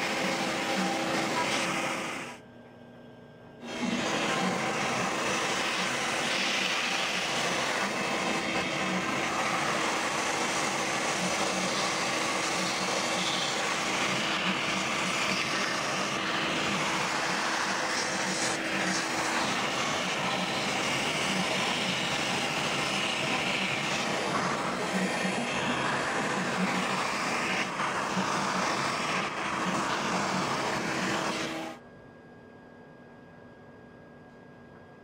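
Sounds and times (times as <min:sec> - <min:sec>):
cnc router cutting foam: 0:00.0 - 0:02.4, 0:03.6 - 0:31.8.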